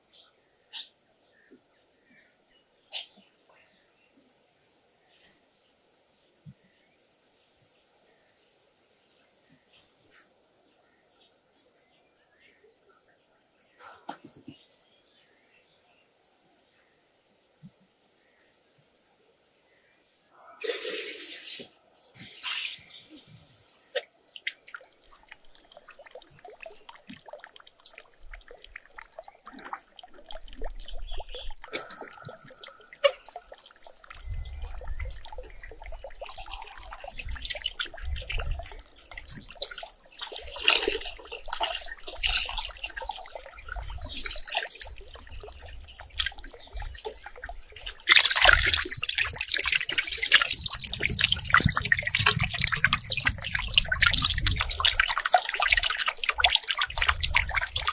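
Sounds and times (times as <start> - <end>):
water trickling and dripping: 23.2 - 57.9
small water splashes: 23.9 - 57.9.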